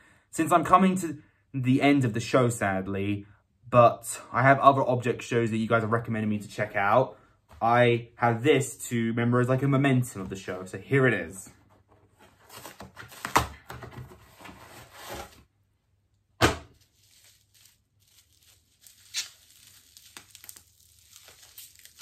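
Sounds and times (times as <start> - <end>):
packaging tearing and rustling: 16.7 - 22.0
plastic wrapping crinkling: 16.7 - 22.0.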